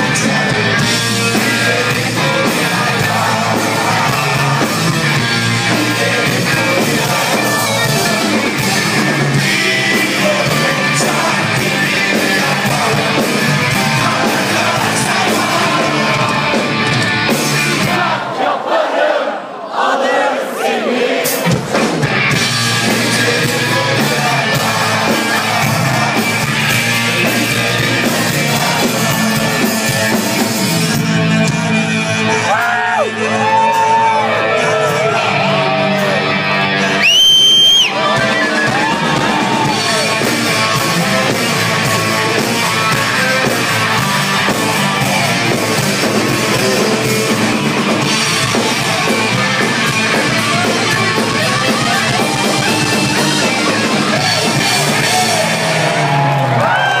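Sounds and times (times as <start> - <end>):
man singing: 0.0 - 18.1, 22.4 - 30.5, 37.8 - 55.8
live rock band playing: 0.0 - 18.3, 21.2 - 57.0
crowd yelling along: 0.0 - 57.0
loud shrill whistle: 36.9 - 38.0.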